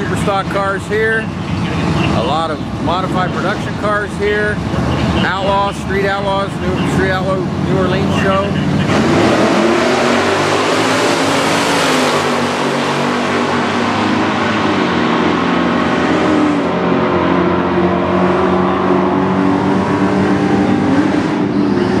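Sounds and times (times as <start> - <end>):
drag racing engines revving: 0.0 - 22.0.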